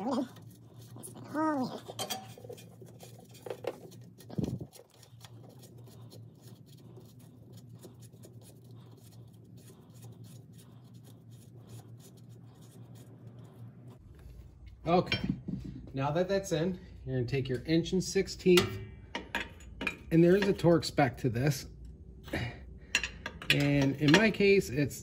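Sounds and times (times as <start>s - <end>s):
steady low hum: 0.0s - 25.0s
small clicks and scraping: 0.1s - 10.3s.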